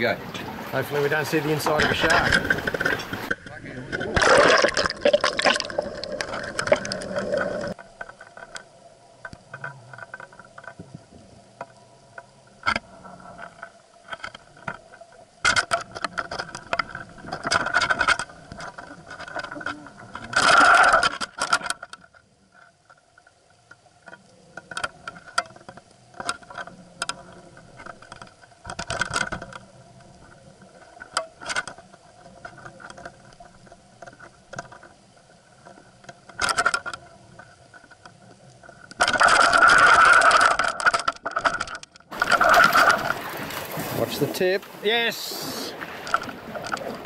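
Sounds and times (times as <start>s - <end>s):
faint underwater hum: 0.0s - 21.1s
underwater rushes: 0.0s - 21.9s, 24.4s - 47.0s.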